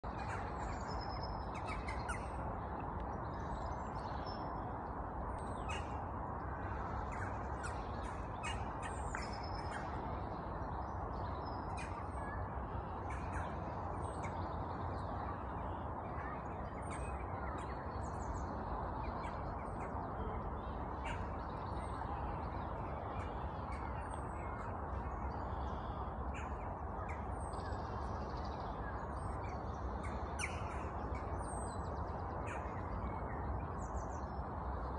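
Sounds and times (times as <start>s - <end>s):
birds chirping and cawing: 0.1s - 2.4s, 5.5s - 10.1s, 11.6s - 14.7s, 29.3s - 32.8s.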